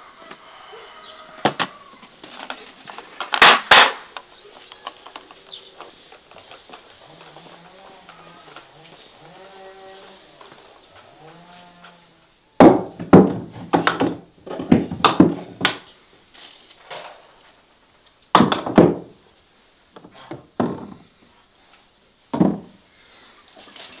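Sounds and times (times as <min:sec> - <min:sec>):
knocks and thuds on wood: 0:12.6 - 0:15.8, 0:18.3 - 0:19.2, 0:20.0 - 0:21.1, 0:22.3 - 0:22.8.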